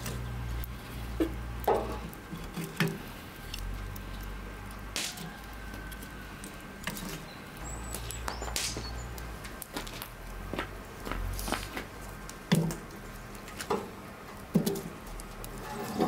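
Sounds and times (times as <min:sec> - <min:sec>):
wood fire crackling and popping: 0:00.0 - 0:16.0
wood knocking against wood and metal: 0:01.2 - 0:03.0.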